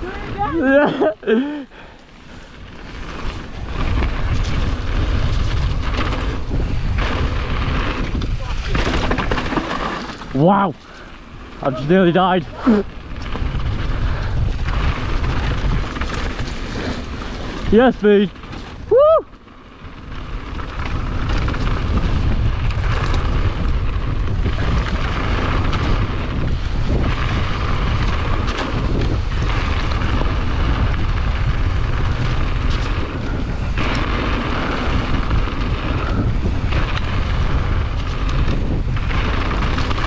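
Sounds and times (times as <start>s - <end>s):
wind buffeting microphone: 0.0s - 40.0s
tyres crunching over gravel: 1.4s - 40.0s.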